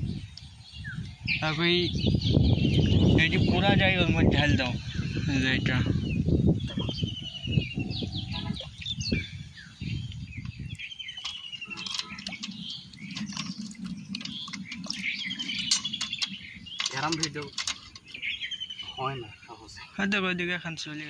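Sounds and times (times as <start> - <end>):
small birds chirping: 0.0 - 21.0
cast net rustling and knocking: 11.2 - 18.3.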